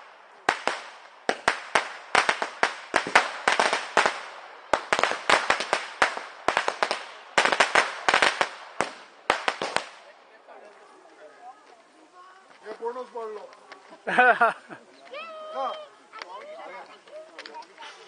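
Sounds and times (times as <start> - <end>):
firecrackers exploding: 0.0 - 10.2.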